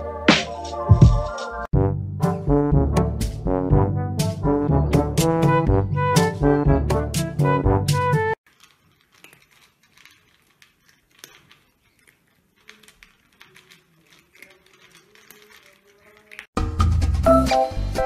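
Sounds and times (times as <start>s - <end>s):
cats crunching dry kibble: 8.4s - 16.6s.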